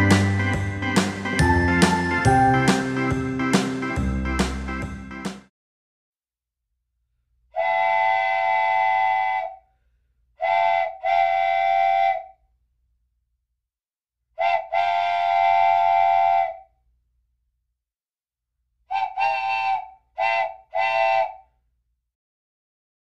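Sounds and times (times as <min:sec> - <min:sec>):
train whistle blasts: 0:07.6 - 0:09.6, 0:10.4 - 0:12.3, 0:14.4 - 0:16.7, 0:18.9 - 0:21.4.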